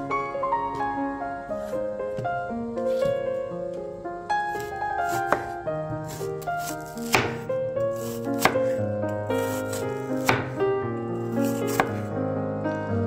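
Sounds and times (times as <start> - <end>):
knife cutting onion on wooden board: 4.5 - 10.6, 11.4 - 12.1.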